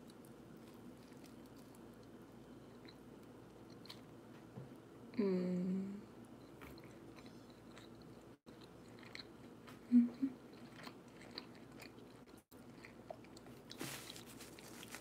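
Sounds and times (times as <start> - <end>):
person chewing: 0.0 - 4.1, 6.3 - 15.0
person humming: 5.2 - 6.1, 9.8 - 10.4.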